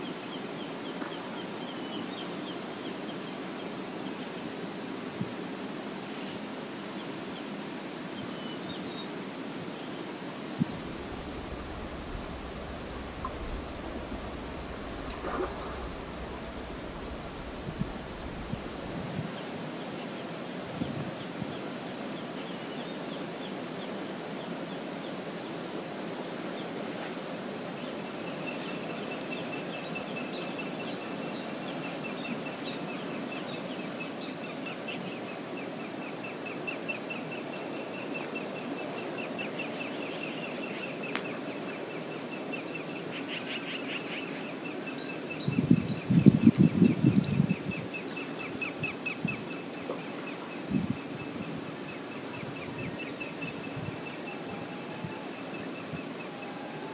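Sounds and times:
steady rushing noise: 10.4 - 19.8
burst of low noise: 10.5 - 19.5.

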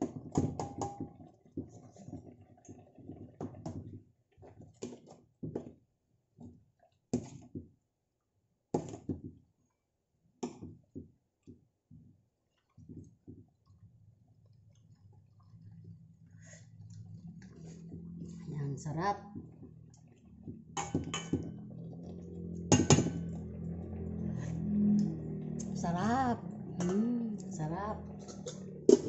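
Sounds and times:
soft wet sloshing: 8.9 - 29.0.

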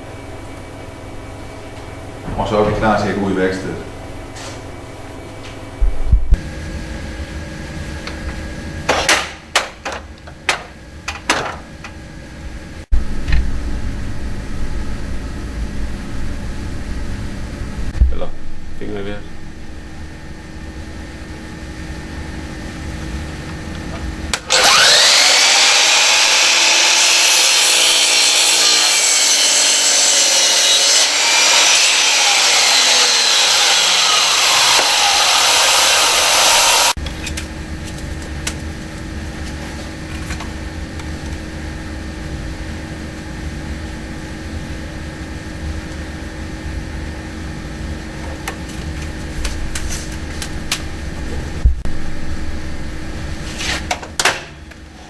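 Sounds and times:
low hum: 0.0 - 9.0, 10.1 - 25.2, 36.9 - 53.6
mitre saw cutting wood: 24.3 - 37.0.

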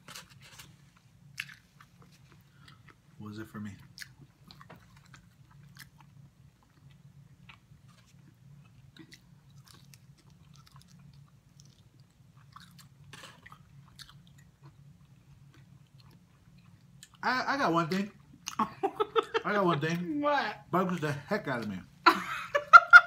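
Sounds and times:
chewing and crunching: 0.0 - 17.2
steady low hum: 0.0 - 23.0.

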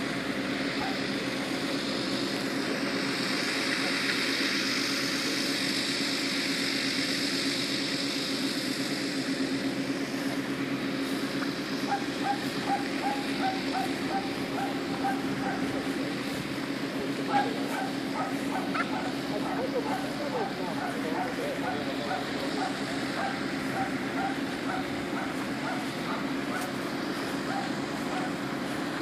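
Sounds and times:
tractor engine running: 0.0 - 29.0
dog yelping: 0.8 - 1.0, 11.9 - 15.8, 17.2 - 26.7, 27.5 - 28.4.

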